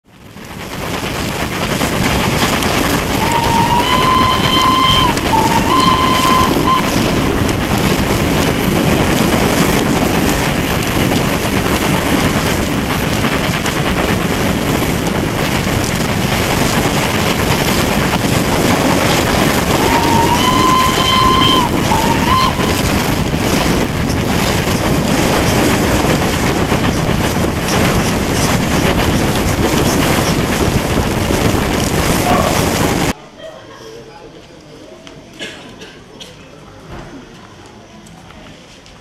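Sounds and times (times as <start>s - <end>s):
steam train running: 0.1s - 33.2s
wind buffeting microphone: 0.1s - 33.2s
locomotive whistle blowing: 3.2s - 7.4s, 19.1s - 23.3s.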